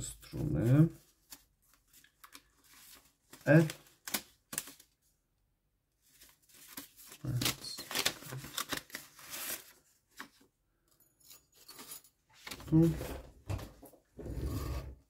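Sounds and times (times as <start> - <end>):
paper crinkling and tearing: 1.1 - 5.0, 6.1 - 10.4.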